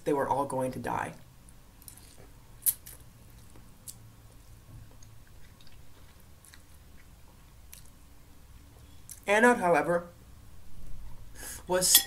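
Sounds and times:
person chewing noodles: 1.9s - 8.0s.

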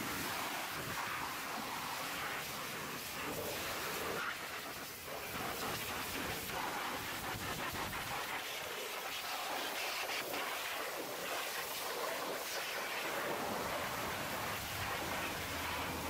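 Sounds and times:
pressure washer spraying: 12.6s - 16.0s.

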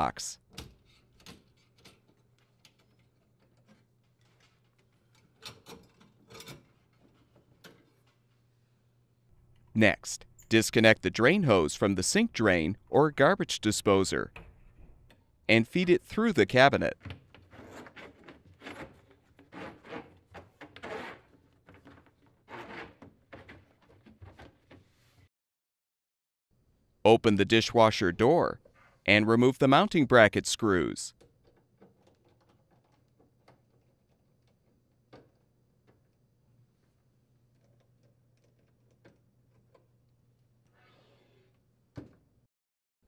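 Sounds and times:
plastic hose rasping against wood: 22.4s - 23.5s.

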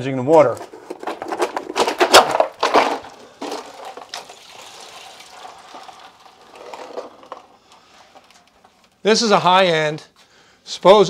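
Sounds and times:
plastic rustling and scraping: 0.3s - 9.1s
plastic cracking: 0.4s - 9.0s.

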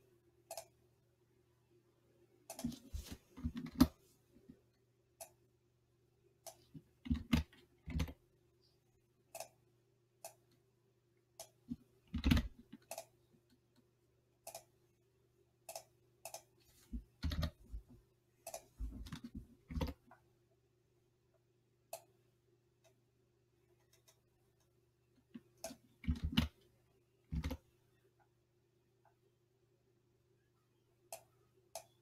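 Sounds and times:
faint steady hum: 0.0s - 32.0s
computer mouse clicks: 0.5s - 0.8s, 2.5s - 3.9s, 5.2s - 5.4s, 6.4s - 8.2s, 9.3s - 9.6s, 10.2s - 10.6s, 11.4s - 14.8s, 15.6s - 17.6s, 18.4s - 20.2s, 23.8s - 26.6s, 27.3s - 27.7s, 31.1s - 32.0s
keyboard key presses: 12.1s - 13.1s, 17.1s - 17.7s, 25.6s - 26.6s, 27.3s - 27.6s.

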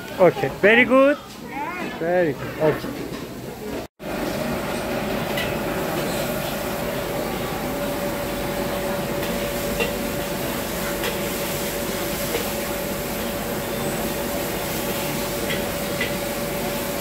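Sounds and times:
noodles sizzling in a wok: 5.5s - 17.0s.

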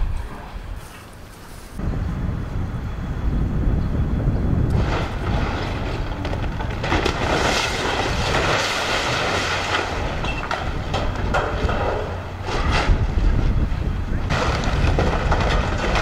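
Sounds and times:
debris clattering down: 4.7s - 16.0s
timber cracking and splintering: 4.8s - 13.3s, 14.3s - 16.0s.

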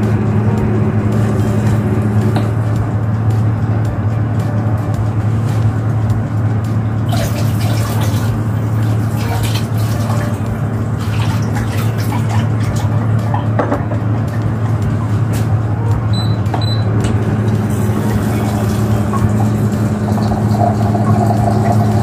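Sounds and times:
steady low hum: 0.0s - 22.0s
water running from kitchen tap: 7.0s - 13.5s, 17.5s - 22.0s.

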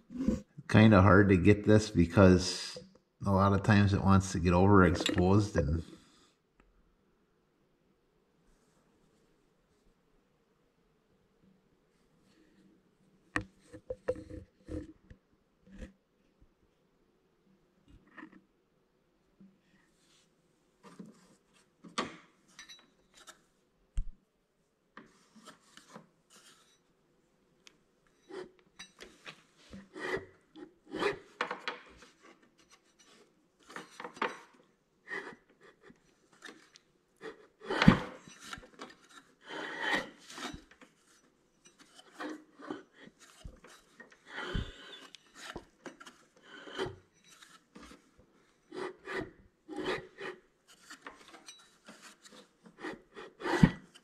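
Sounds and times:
rubbing and scraping: 28.3s - 54.0s.

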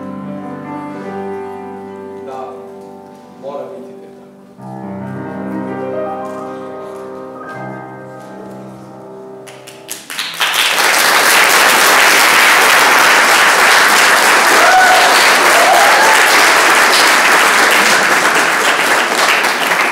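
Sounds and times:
piano: 0.0s - 19.9s
audience applauding: 9.5s - 19.9s.

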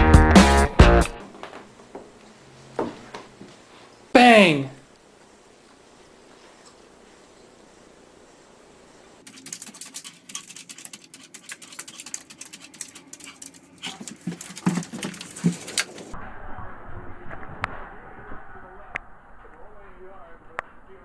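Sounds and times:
dog claws scratching glass door: 9.3s - 16.1s.

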